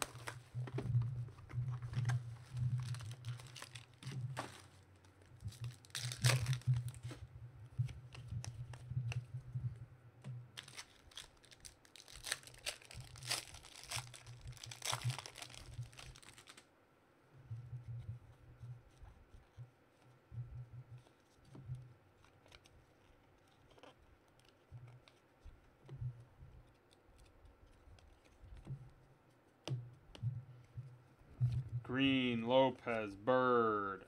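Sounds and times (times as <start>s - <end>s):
plastic wrappers torn and crinkled: 0.0s - 0.4s, 2.0s - 7.1s, 10.5s - 16.7s.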